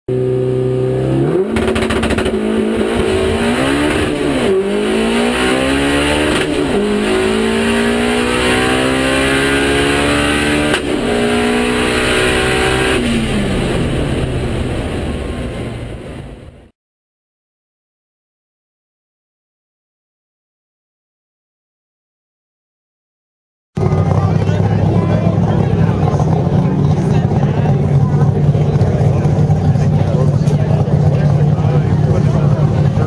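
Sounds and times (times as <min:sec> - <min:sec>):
race car engine revving: 0:00.1 - 0:16.5, 0:23.8 - 0:33.0.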